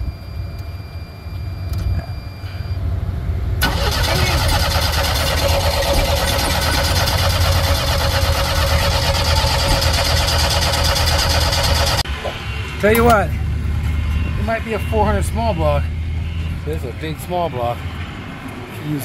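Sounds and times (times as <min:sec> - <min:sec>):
vehicle engine starting and running: 0:03.6 - 0:12.2.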